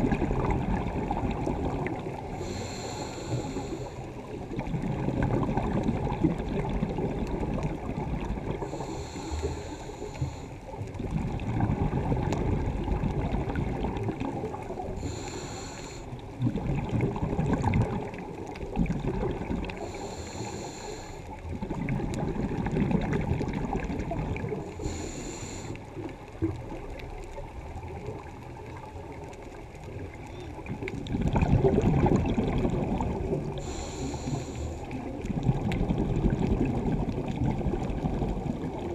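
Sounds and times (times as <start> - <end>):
bubbles rumbling and gurgling: 0.0 - 38.9
diver breathing through regulator: 2.2 - 4.2, 8.6 - 10.7, 14.9 - 16.2, 19.7 - 21.4, 24.5 - 25.9, 33.4 - 35.1
regulator hiss: 2.4 - 4.1, 15.0 - 16.1, 19.8 - 21.2, 24.8 - 25.8, 33.6 - 34.9.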